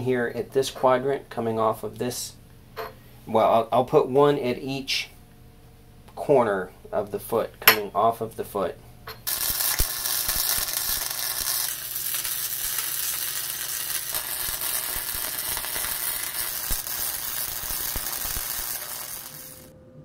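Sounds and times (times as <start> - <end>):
welding arc crackling sizzle: 9.1 - 19.8
sharp spatter pops: 9.2 - 19.7.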